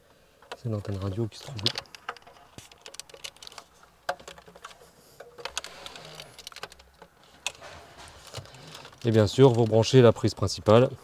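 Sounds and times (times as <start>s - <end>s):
plastic connectors clicking: 0.4s - 7.6s.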